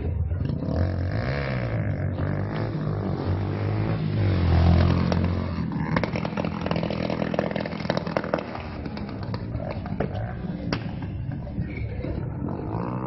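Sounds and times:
motorcycle engine revving: 0.0 - 13.0
rapid crackling clatter: 4.8 - 10.0.

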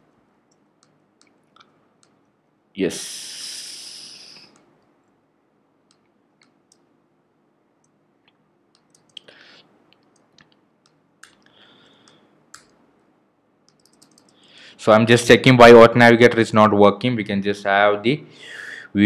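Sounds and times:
computer keyboard clicks: 8.7 - 9.3, 13.7 - 14.4.

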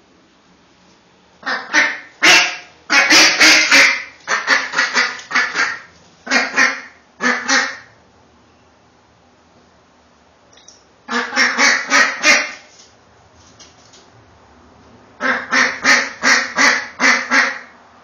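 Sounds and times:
ducks quacking: 1.4 - 7.9, 11.1 - 12.7, 15.2 - 17.7.

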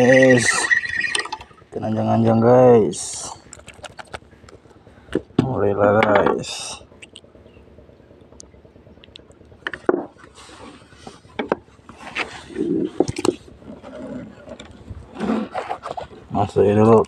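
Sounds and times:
scrapes: 10.2 - 13.0, 13.6 - 16.3.

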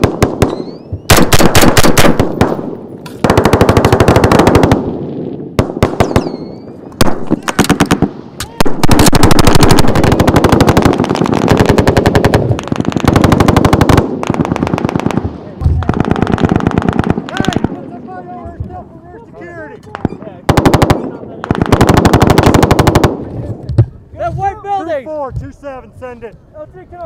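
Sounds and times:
automatic gunfire bursts: 0.0 - 4.9, 5.6 - 8.1, 8.8 - 15.2, 15.8 - 17.7, 20.5 - 23.2.

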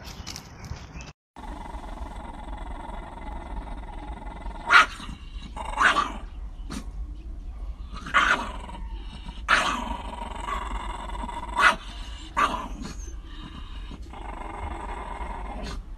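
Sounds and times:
dogs growling: 1.4 - 7.0, 7.8 - 15.9
dogs barking: 4.3 - 14.8.

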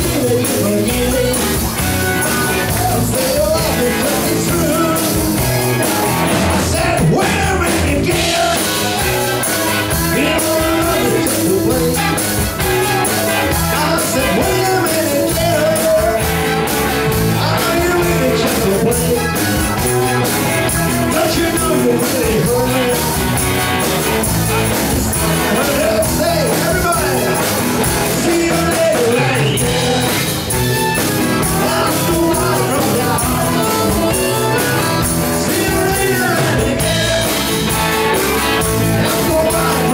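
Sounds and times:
live rock band playing: 0.0 - 39.9
person singing: 0.0 - 39.9.

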